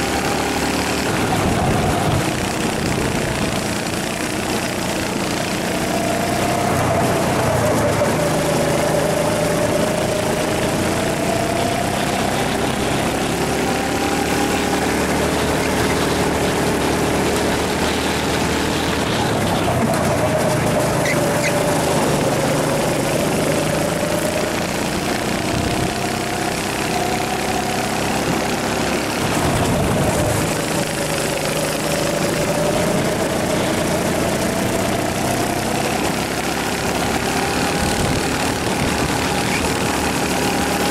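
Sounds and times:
go-kart engine: 0.0 - 40.9
steady rushing noise: 0.0 - 40.9.

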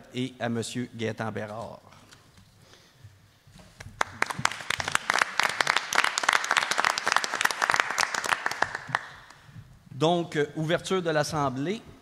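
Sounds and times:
small group clapping: 3.8 - 9.4.

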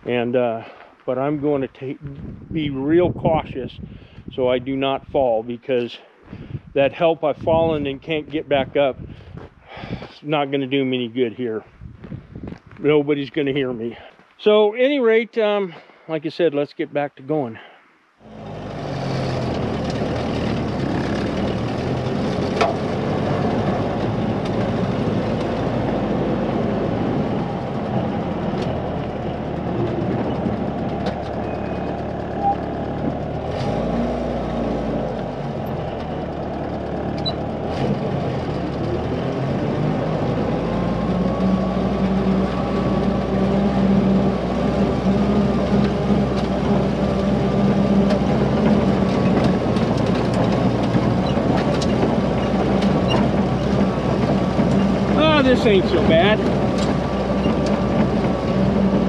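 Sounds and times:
road noise: 0.0 - 16.1, 17.3 - 59.0
jeep engine running: 18.2 - 59.0.

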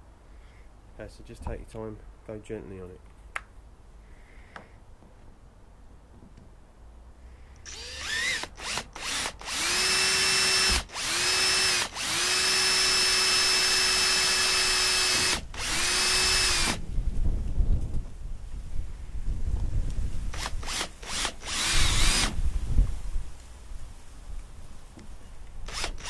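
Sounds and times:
drill trigger blips: 7.6 - 16.8, 20.4 - 22.4, 25.7 - 26.0
cordless drill boring: 7.7 - 16.8, 20.3 - 22.4, 25.6 - 26.0.

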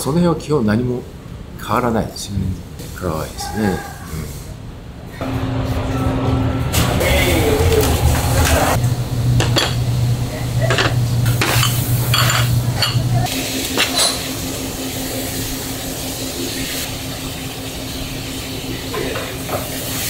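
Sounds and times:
dishes and pans clattering: 9.4 - 9.9, 10.6 - 14.3.

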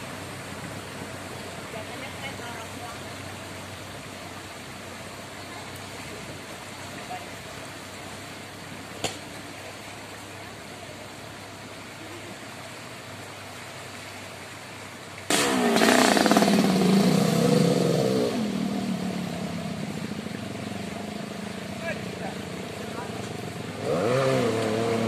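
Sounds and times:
floodwater rushing: 0.0 - 25.0
water spraying: 11.1 - 25.0
motorcycle engine revving: 15.3 - 25.0.

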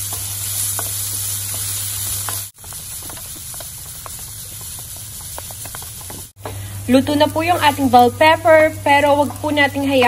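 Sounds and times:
peppers sizzling in oil: 0.0 - 10.0
spatula tapping and scraping pan: 0.1 - 6.6.

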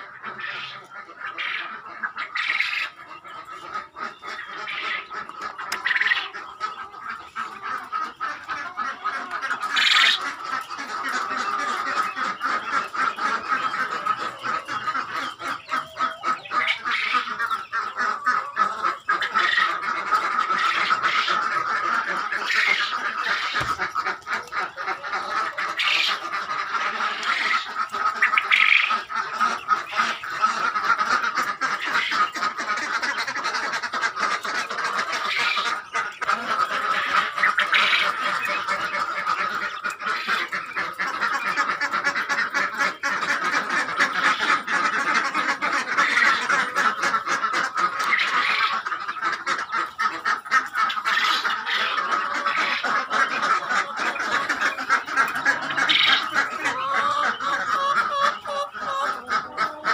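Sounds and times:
ducks quacking: 0.0 - 59.9
poultry flock chattering: 0.0 - 59.9.

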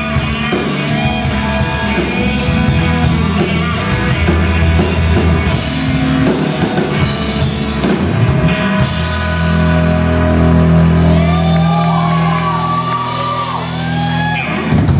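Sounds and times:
live rock band playing: 0.0 - 14.9
sliding electric guitar notes: 0.0 - 14.9.

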